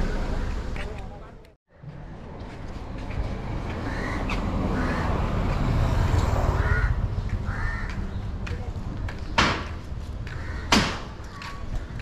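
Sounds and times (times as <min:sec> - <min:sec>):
passing motor vehicle rumble: 0:00.0 - 0:10.4
crow cawing: 0:03.8 - 0:05.2, 0:06.6 - 0:08.1, 0:10.2 - 0:12.0.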